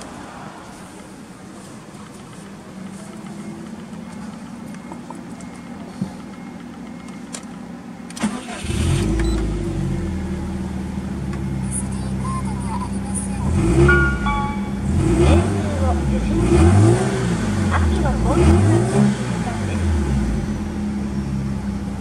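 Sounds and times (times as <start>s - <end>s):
car engine idling: 0.0s - 22.0s
starter motor cranking: 8.1s - 9.5s
low steady hum: 9.1s - 16.4s.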